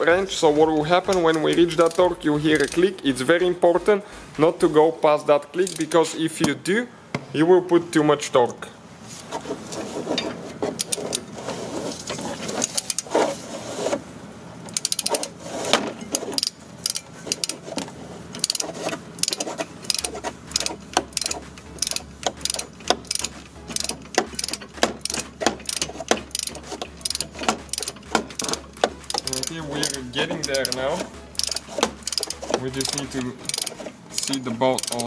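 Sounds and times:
ratchet wrench clicking: 0:01.0 - 0:02.9, 0:05.6 - 0:06.0, 0:12.6 - 0:13.1, 0:14.7 - 0:15.3, 0:16.4 - 0:17.6, 0:18.3 - 0:35.0.

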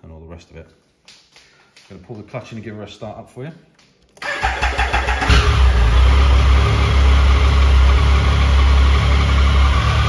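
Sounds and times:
motorcycle starter: 0:04.2 - 0:05.8.

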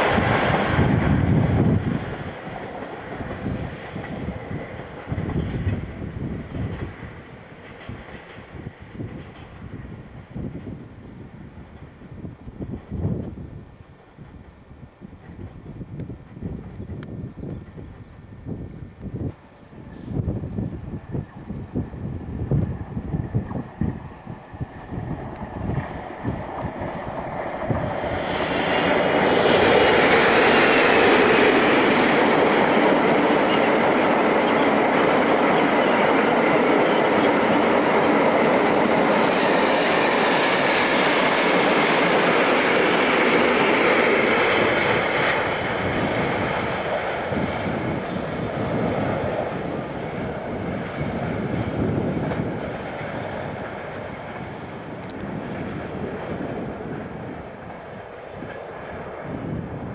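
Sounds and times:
diesel locomotive passing: 0:00.0 - 0:59.9
wheels squealing against rail: 0:23.4 - 0:37.8.

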